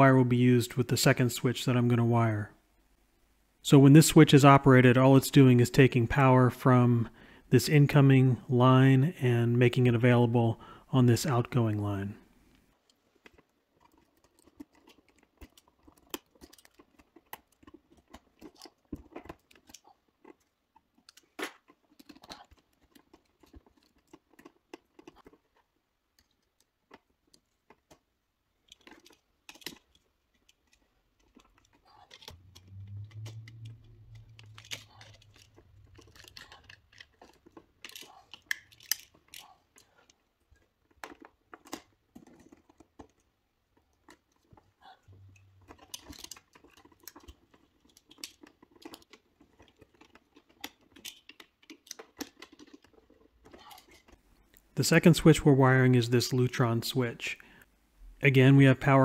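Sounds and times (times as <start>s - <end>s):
wires being bent and handled: 12.6s - 55.0s
low hum: 32.3s - 36.8s.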